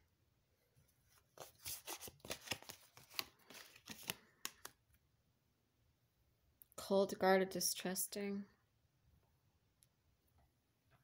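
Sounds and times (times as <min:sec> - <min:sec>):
cards being shuffled by hand: 0:01.0 - 0:05.0.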